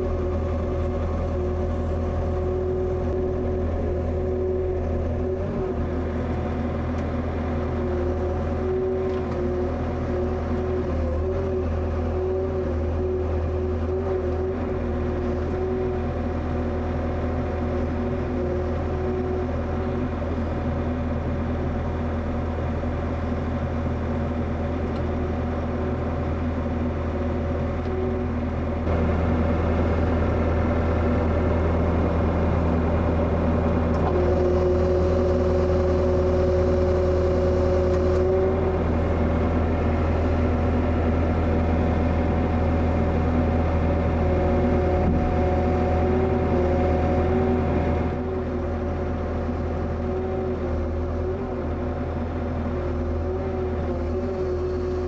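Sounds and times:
excavator diesel engine running: 0:00.0 - 0:55.0
hydraulics whining: 0:21.8 - 0:55.0.

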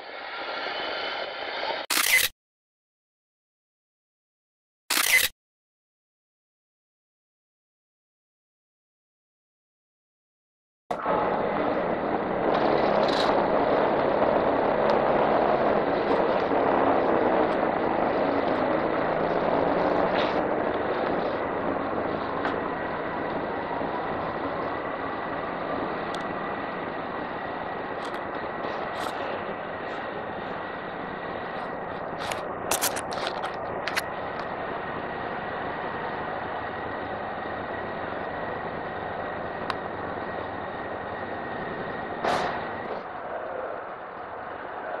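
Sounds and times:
machinery drone: 0:00.0 - 0:02.3, 0:10.9 - 0:45.0
scooter engine running: 0:10.9 - 0:43.2.

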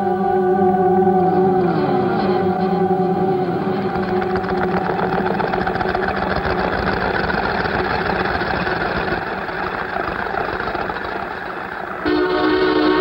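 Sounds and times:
machine rattling: 0:03.8 - 0:12.0.

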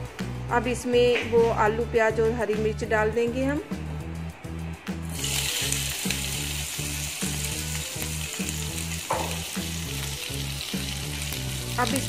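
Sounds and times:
background music with steady beat: 0:00.0 - 0:12.0
hot oil sizzling in a pan: 0:05.1 - 0:12.0.

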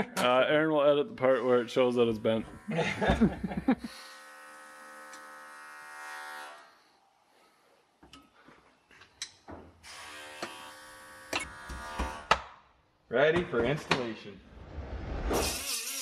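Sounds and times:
steady electric buzz: 0:01.7 - 0:06.6, 0:09.8 - 0:12.3.

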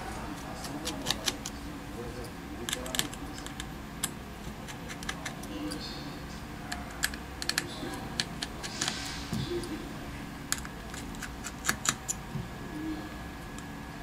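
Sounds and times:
screwdriver clicking on small screws: 0:10.5 - 0:12.2.

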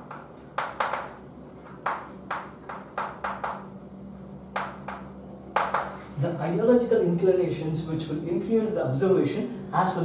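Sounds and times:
chalk tapping and scratching: 0:00.0 - 0:03.6, 0:05.6 - 0:06.2.

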